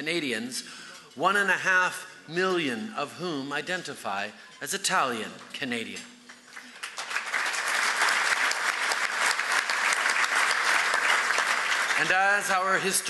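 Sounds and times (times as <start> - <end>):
audience applauding: 6.2 - 13.0.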